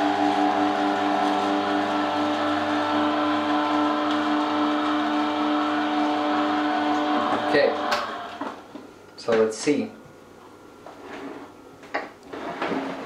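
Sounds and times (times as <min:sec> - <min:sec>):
juicer motor humming with whine: 0:00.0 - 0:08.9.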